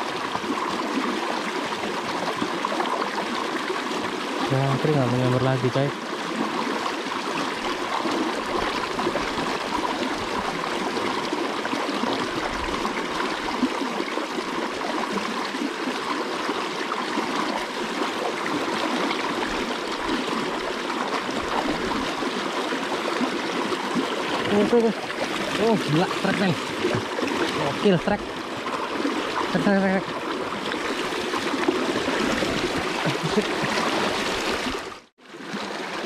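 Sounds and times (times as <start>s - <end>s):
river current rushing: 17.2s - 36.0s.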